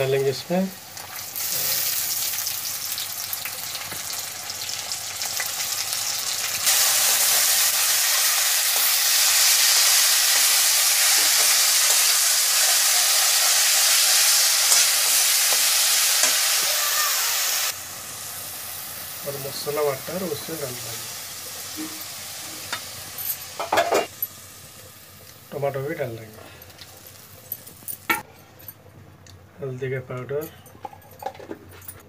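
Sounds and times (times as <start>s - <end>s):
onions sizzling in oil: 0.0s - 28.2s
metal spatula stirring: 13.8s - 16.4s.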